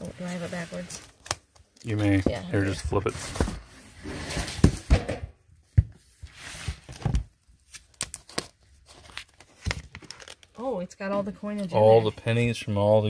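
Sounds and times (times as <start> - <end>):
plastic rustling: 6.6 - 10.6.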